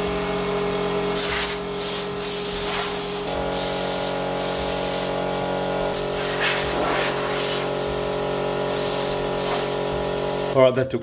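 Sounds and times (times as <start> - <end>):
steady machine hum: 0.0 - 10.6
compressed air blow gun hissing: 1.2 - 5.2, 5.9 - 8.0, 8.6 - 9.8.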